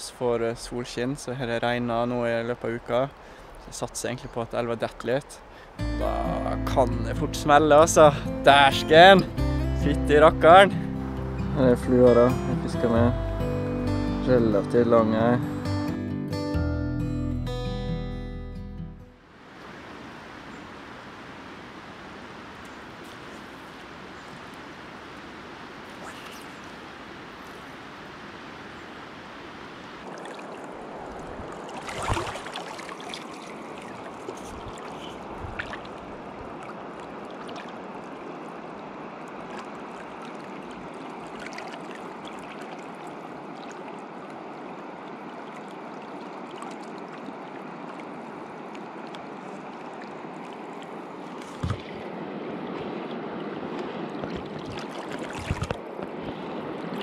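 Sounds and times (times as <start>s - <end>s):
fast-flowing river rushing: 19.3s - 57.0s.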